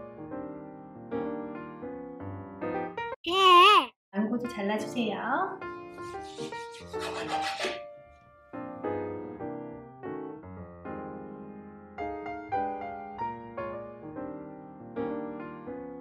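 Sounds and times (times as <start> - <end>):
soft piano music: 0.0 - 3.2, 7.8 - 16.0.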